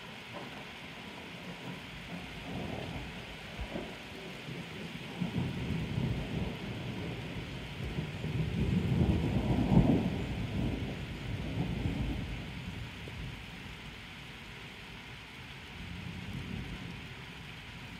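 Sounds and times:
thunder rolling: 5.1 - 12.6.

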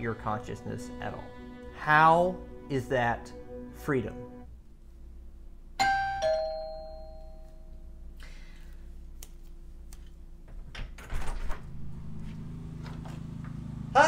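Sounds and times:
two-tone doorbell chime: 5.8 - 7.8.

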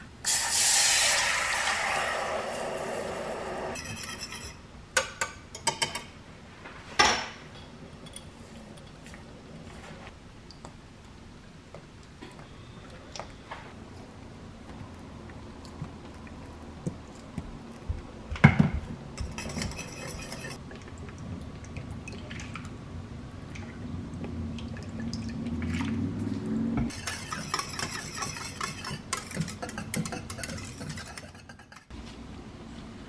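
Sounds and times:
whisk scraping metal saucepan: 3.7 - 4.6, 19.2 - 20.6, 26.9 - 31.9.

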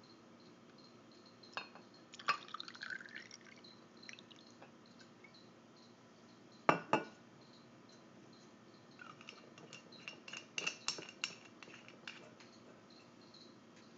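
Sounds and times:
glass clinking: 1.5 - 4.7, 6.7 - 7.2, 9.0 - 12.6
liquid pouring into glass: 2.1 - 4.6.

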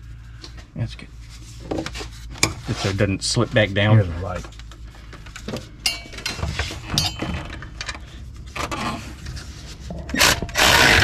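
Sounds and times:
metal-on-metal clinks: 5.8 - 7.4
loud burst of noise: 10.2 - 11.0.

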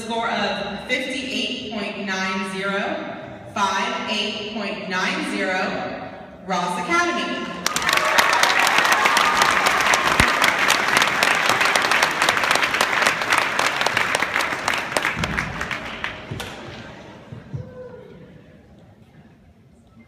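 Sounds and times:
crowd applauding: 7.6 - 16.8.

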